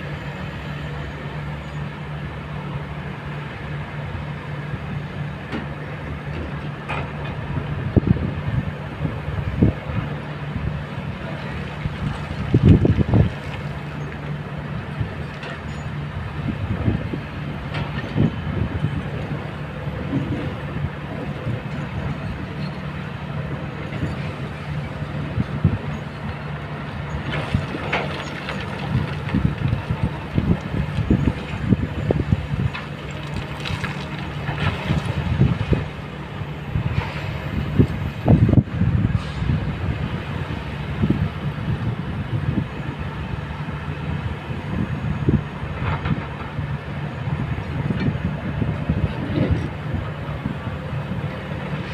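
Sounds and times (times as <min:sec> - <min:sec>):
excavator diesel engines running: 0:00.0 - 0:51.9
stones clattering and scraping: 0:32.7 - 0:35.2.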